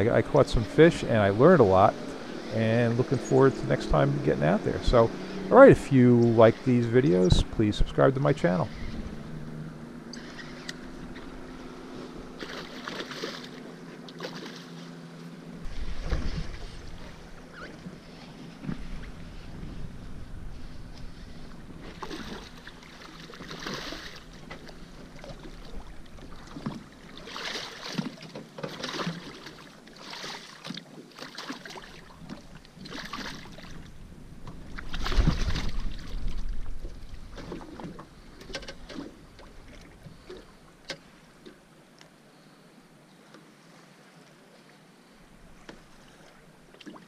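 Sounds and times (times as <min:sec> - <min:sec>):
fish splashing at water surface: 0:12.3 - 0:14.9, 0:21.9 - 0:25.7.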